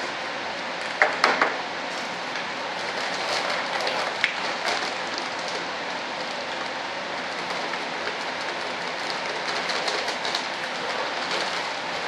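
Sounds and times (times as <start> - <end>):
powder pouring into bucket: 2.6 - 12.0.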